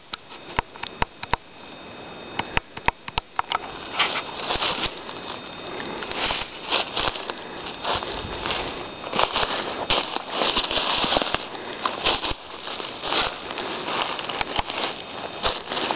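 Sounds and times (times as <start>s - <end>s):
footsteps on dry leaves: 3.6s - 15.9s
twigs snapping: 9.1s - 15.9s.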